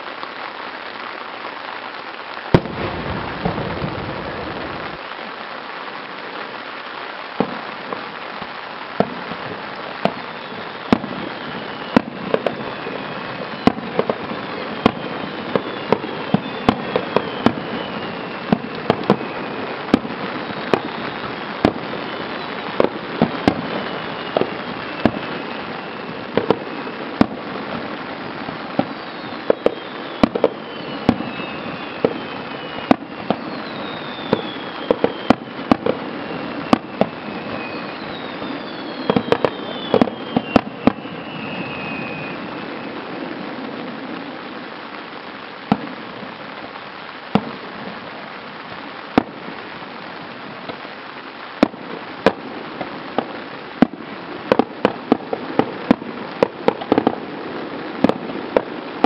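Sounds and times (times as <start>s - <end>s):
descending firework whistles: 0.0s - 59.0s
steady hiss: 0.0s - 59.0s
firework shells bursting: 8.9s - 42.2s.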